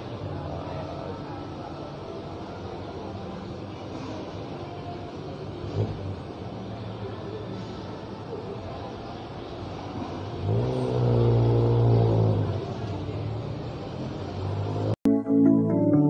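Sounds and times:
vehicle engine revving: 0:05.6 - 0:06.4, 0:10.0 - 0:15.0
plucked guitar music: 0:15.1 - 0:16.0.

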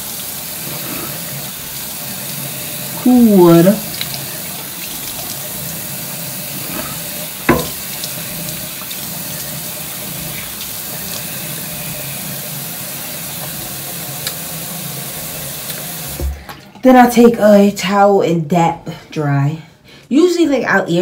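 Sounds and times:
tap running into sink: 0:06.6 - 0:09.1, 0:15.6 - 0:16.6
brief knock: 0:07.5 - 0:07.8.

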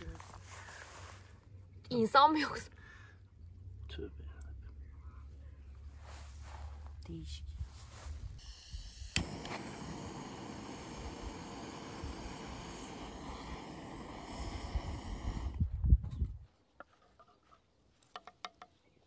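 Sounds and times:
torch ignition click: 0:08.4 - 0:15.6
torch flame hissing: 0:08.4 - 0:15.8.

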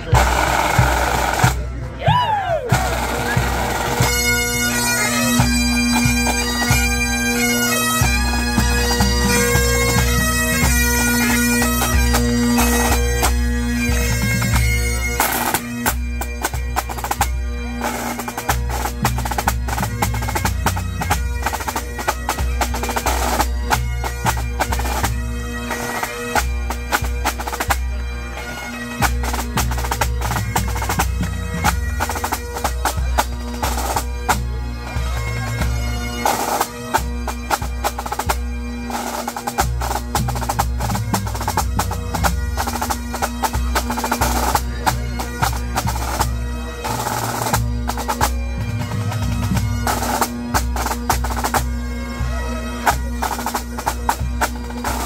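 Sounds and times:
tenor and bass drums beating: 0:00.0 - 0:04.7, 0:36.6 - 0:46.4, 0:47.0 - 0:51.8
bagpipes over a drone: 0:00.0 - 0:55.0.

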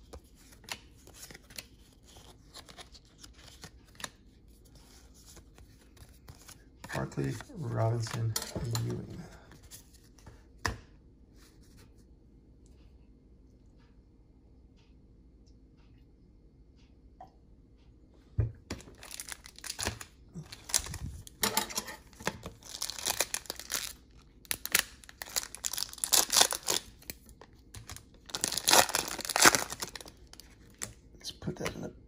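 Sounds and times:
wrapper tearing and crinkling: 0:18.9 - 0:21.4, 0:22.0 - 0:27.2, 0:27.8 - 0:30.9.

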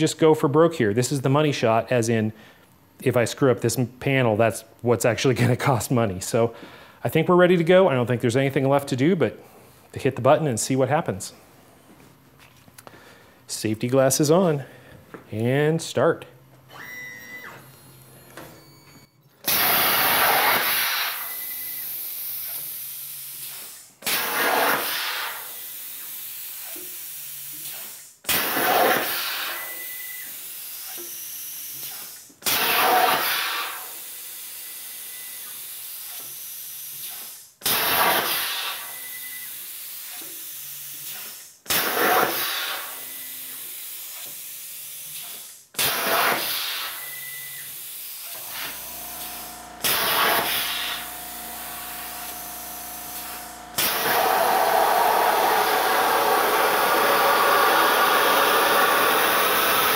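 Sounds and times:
plasma arc cutting steel: 0:19.5 - 0:59.9
low motor hum: 0:48.7 - 0:53.8.

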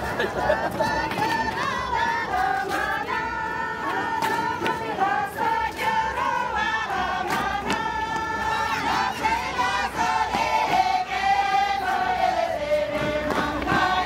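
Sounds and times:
women singing in unison: 0:00.0 - 0:14.0.

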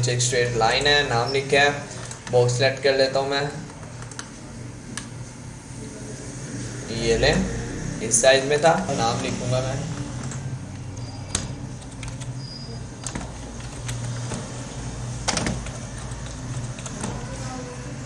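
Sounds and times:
steady low hum: 0:00.0 - 0:18.0
keyboard keys clicking: 0:11.3 - 0:12.4, 0:13.0 - 0:14.4, 0:15.2 - 0:17.2.

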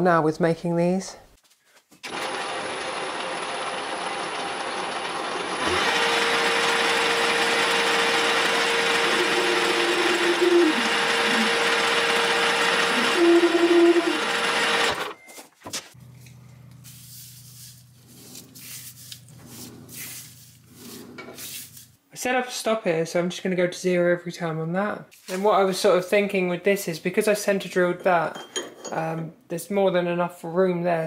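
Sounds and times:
metal lathe whirring: 0:02.1 - 0:15.2.

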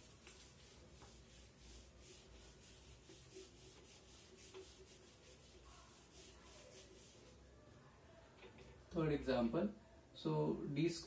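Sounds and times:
eraser rubbing on whiteboard: 0:00.0 - 0:07.4.

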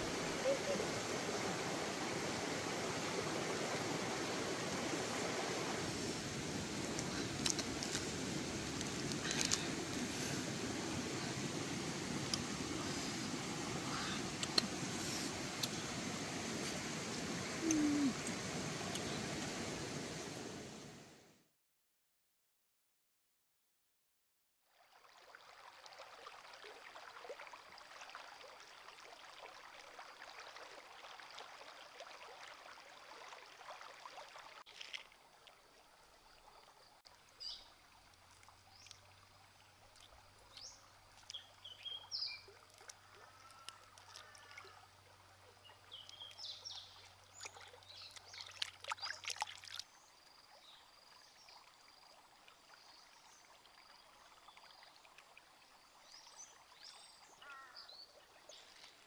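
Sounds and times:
shallow stream flowing: 0:00.0 - 0:21.3, 0:24.6 - 0:59.0
hands splashing in water: 0:47.4 - 0:49.8.

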